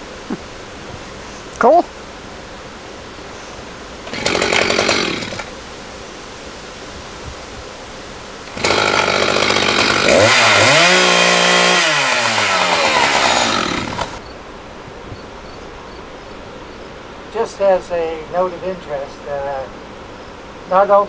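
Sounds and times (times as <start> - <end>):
chainsaw revving: 4.0 - 5.5, 8.5 - 14.2.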